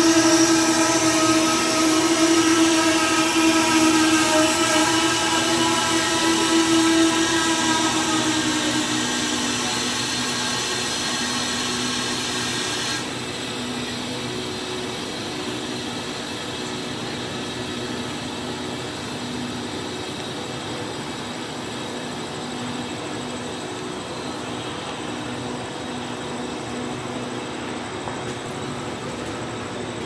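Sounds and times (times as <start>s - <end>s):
loud air hiss: 0.0s - 13.4s
train coaches rolling hum: 0.0s - 30.0s.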